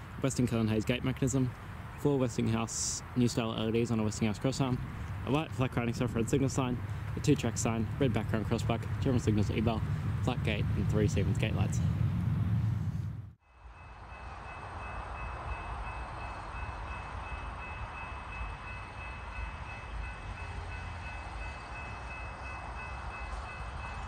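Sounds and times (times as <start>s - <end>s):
steady low rumble: 3.6s - 13.4s
level crossing bells ringing: 13.5s - 24.0s.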